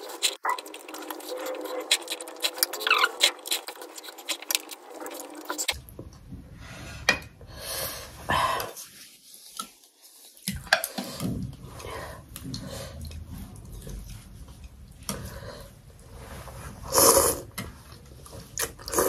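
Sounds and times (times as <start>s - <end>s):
noodle slurp: 0.0s - 5.8s, 16.8s - 17.5s, 18.4s - 19.0s
wet chewing and smacking: 0.0s - 5.8s.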